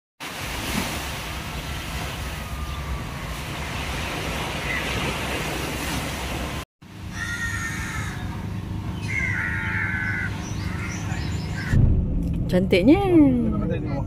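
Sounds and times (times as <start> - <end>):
light surf: 0.2 - 7.5
low rumble: 10.6 - 14.0.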